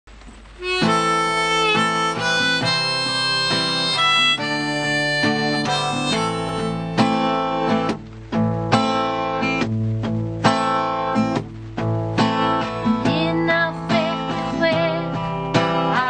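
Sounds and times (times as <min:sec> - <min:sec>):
strummed acoustic guitar: 0:00.1 - 0:16.0
harmonica melody: 0:00.6 - 0:08.0.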